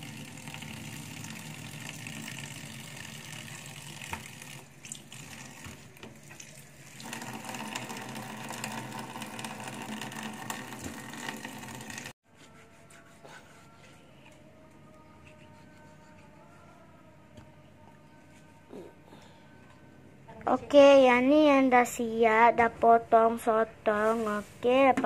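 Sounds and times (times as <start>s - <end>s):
tap water running into a sink: 0.0s - 12.1s.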